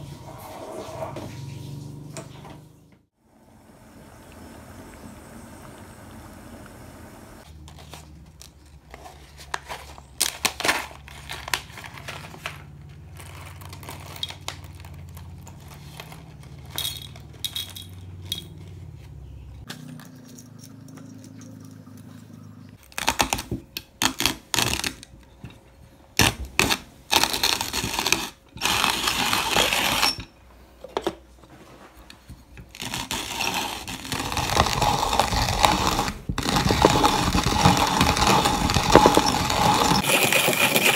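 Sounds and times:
coffee grinder crunching beans: 7.4 - 18.7, 22.8 - 25.2, 26.2 - 30.3, 32.5 - 40.9.

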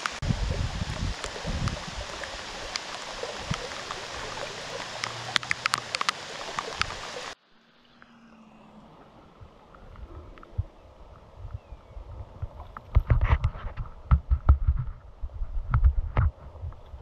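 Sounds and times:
raindrops ticking: 0.0 - 7.4
steady rain hiss: 0.0 - 8.0
stream water rushing: 0.0 - 11.5.

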